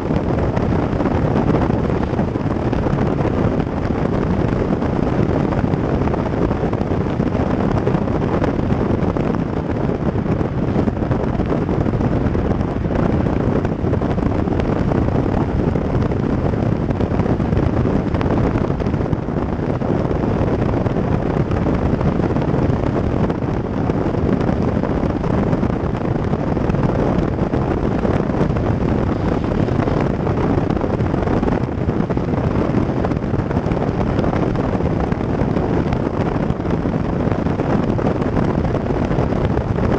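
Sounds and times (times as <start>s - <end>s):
wind rushing on microphone: 0.0s - 39.9s
tyre noise on asphalt: 26.0s - 33.1s.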